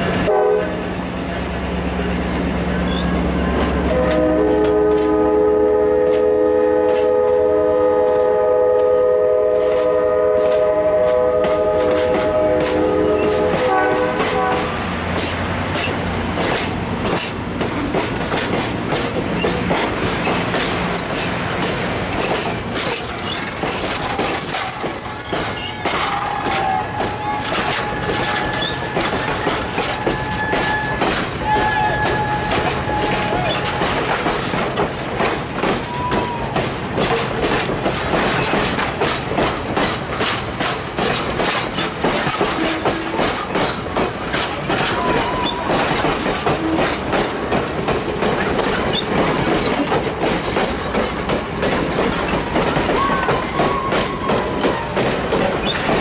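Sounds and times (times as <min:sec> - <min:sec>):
train wheels clicking over rail joints: 0:00.0 - 0:05.4, 0:06.0 - 0:56.0
high wheel squeals: 0:02.8 - 0:03.3, 0:20.3 - 0:34.5.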